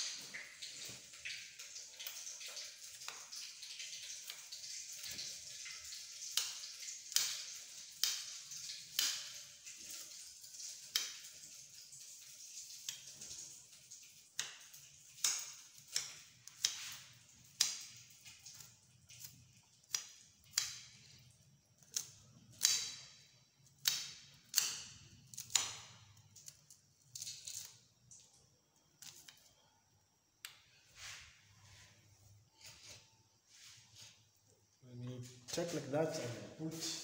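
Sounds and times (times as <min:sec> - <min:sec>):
knife cutting an onion: 0:14.3 - 0:21.1, 0:21.8 - 0:23.1, 0:23.7 - 0:27.8.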